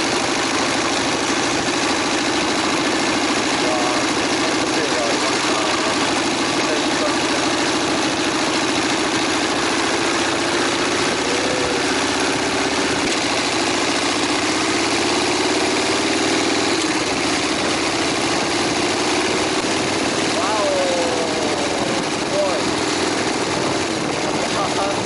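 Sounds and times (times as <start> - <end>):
motorcycle engine running: 0.0 - 25.0
wind noise: 9.5 - 14.3, 21.5 - 25.0.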